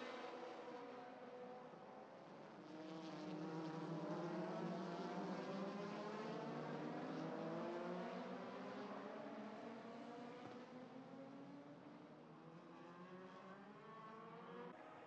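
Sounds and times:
race car engines at high revs: 2.4 - 14.7.

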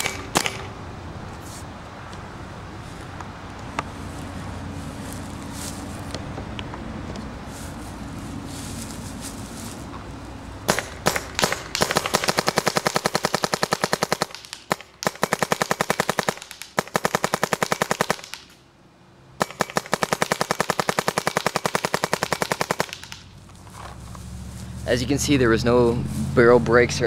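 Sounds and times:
paintball marker firing: 0.0 - 0.7, 10.7 - 18.6, 19.4 - 23.3.

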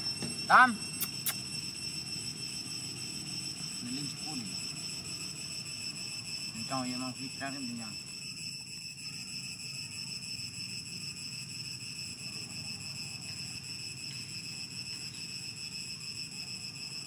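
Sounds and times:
high-pitched insect drone: 0.0 - 17.0.

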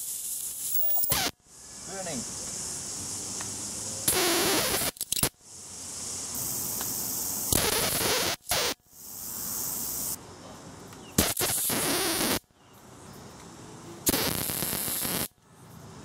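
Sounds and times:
electric arcs crackling: 0.0 - 1.4, 4.0 - 10.2, 11.2 - 12.5, 14.1 - 15.4
high-voltage hiss: 0.0 - 10.4, 11.2 - 12.5, 13.8 - 16.0.

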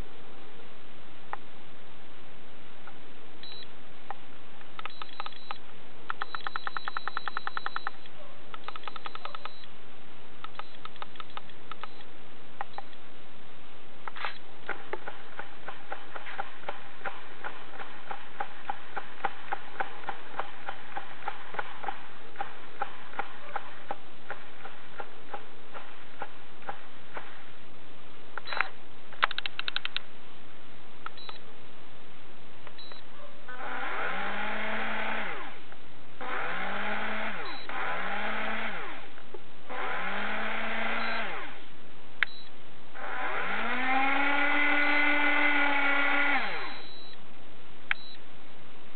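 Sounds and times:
electric motor whine: 43.0 - 46.8.

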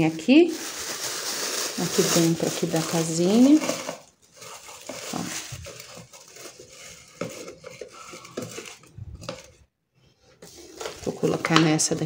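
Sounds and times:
plastic bag rustling: 0.0 - 9.7, 10.4 - 12.0
wood shavings rustling: 0.6 - 9.6.

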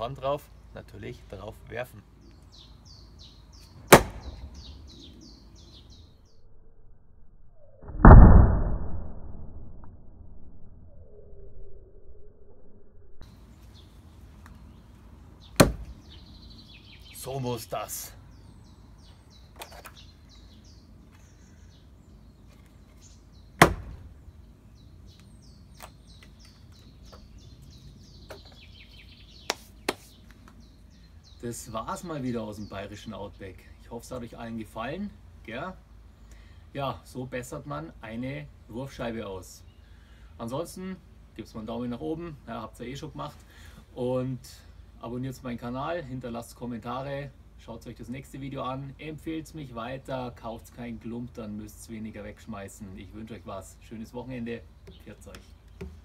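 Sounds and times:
bird chirping: 0.0 - 6.8, 13.2 - 36.6, 52.8 - 56.0
axe striking wooden target: 3.9 - 4.6, 15.6 - 15.9, 23.6 - 24.1.

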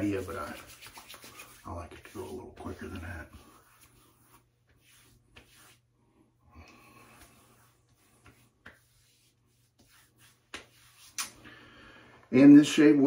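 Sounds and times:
hands patting a wet face: 0.0 - 5.8, 7.0 - 11.5.

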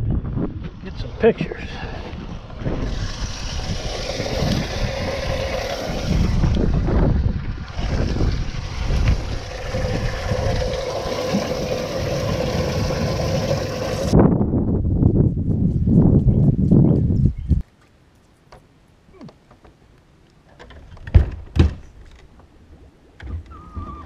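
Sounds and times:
wind buffeting microphone: 0.0 - 17.6.

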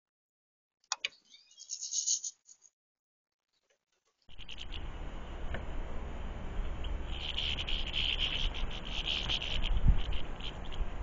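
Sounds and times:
songbird buzzy trilling call: 1.1 - 2.7, 4.3 - 5.0, 7.1 - 11.0
steady low rumble: 4.3 - 11.0.

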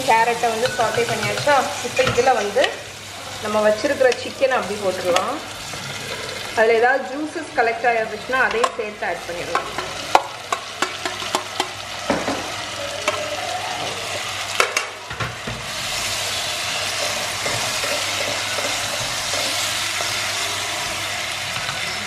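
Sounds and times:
food sizzling in pot: 0.0 - 22.0
wooden spoon stirring pot: 15.4 - 22.0.

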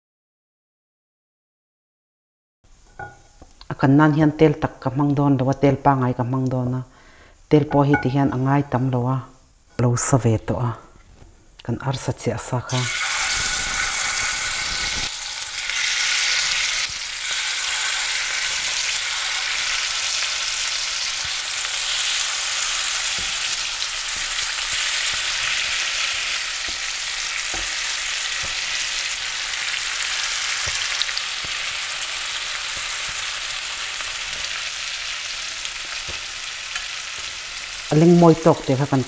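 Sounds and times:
metal tongs knocking pan: 7.7 - 8.2
chicken sizzling in oil: 12.8 - 38.8.

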